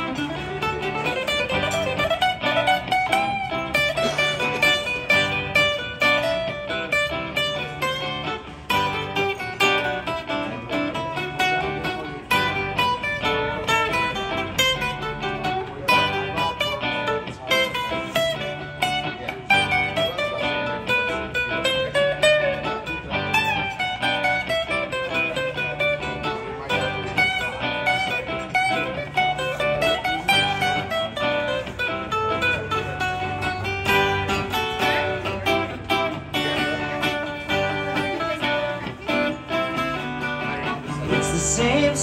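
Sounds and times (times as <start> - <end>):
acoustic guitar playing: 0.0 - 42.0.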